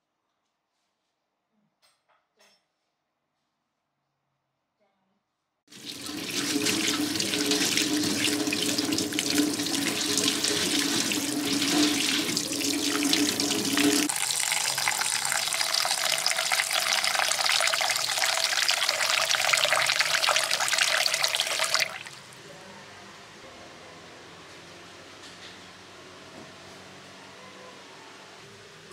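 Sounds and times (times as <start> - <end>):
water pouring into metal bowl: 5.7 - 22.3
tap water splashing in strainer: 5.8 - 22.2.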